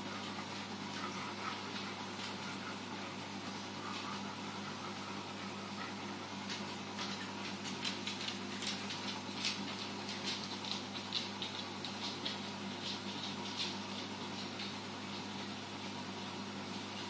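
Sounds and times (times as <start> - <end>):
low pump hum: 0.0 - 17.0
crackling and trickling ticks: 6.5 - 14.0.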